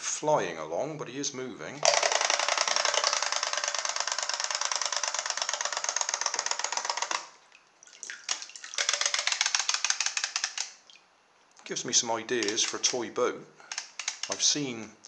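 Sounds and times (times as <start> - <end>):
wind-up toy motor whirring: 1.8 - 7.3, 8.8 - 10.8.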